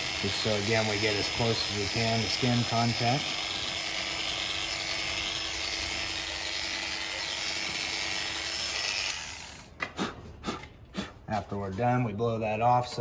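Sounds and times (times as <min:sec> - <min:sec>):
electric clippers humming: 0:00.0 - 0:09.8.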